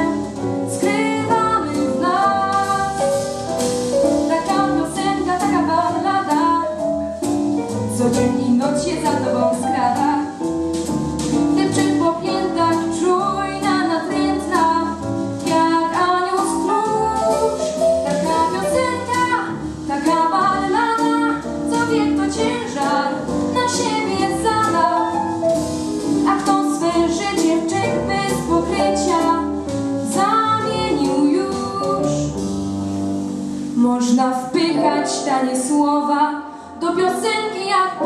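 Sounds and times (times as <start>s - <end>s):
instrumental accompaniment: 0.0s - 38.0s
girl singing into a microphone: 18.3s - 24.9s, 30.1s - 31.9s, 33.8s - 38.0s.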